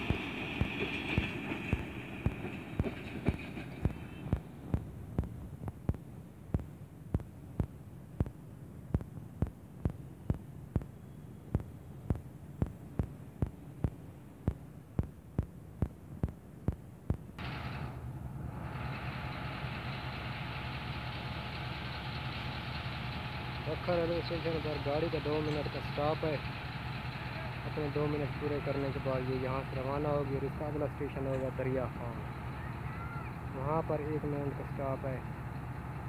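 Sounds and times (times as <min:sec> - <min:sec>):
locomotive engine idling: 0:00.0 - 0:36.0
low hum: 0:00.0 - 0:36.0
sharp ticks: 0:00.1 - 0:17.4.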